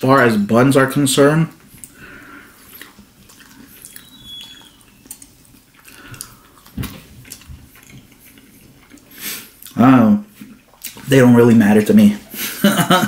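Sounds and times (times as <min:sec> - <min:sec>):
quiet chewing: 0:01.5 - 0:11.1
mouth clicks: 0:02.7 - 0:06.7.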